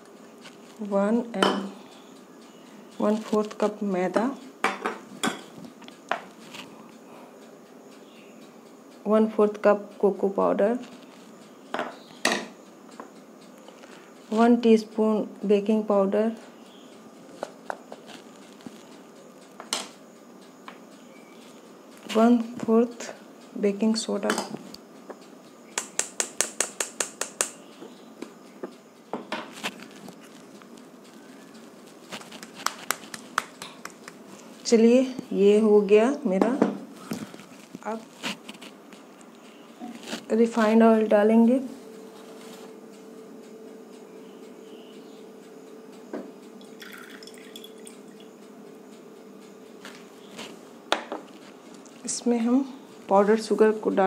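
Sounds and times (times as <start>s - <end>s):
steady low hum: 0.0s - 54.0s
oil trickling into a glass bowl: 46.6s - 48.3s.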